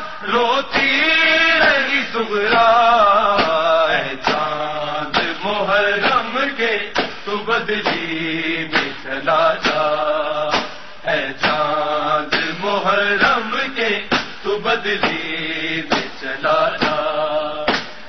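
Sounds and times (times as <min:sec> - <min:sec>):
men chanting a lament: 0:00.0 - 0:18.0
even thumping beat: 0:03.4 - 0:04.5.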